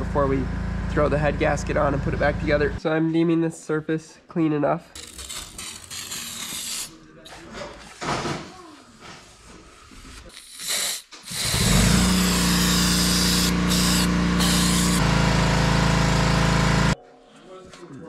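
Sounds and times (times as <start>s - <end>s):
vacuum motor running: 11.3s - 17.0s.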